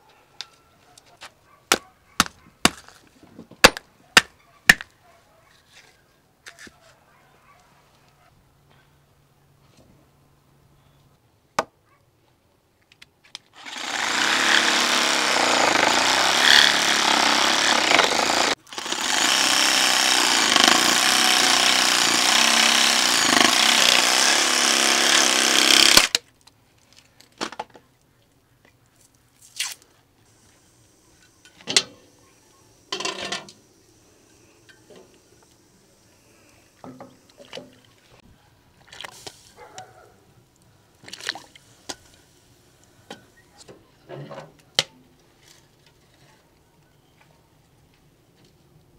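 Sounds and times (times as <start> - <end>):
electric saw cutting bone: 13.6 - 26.2.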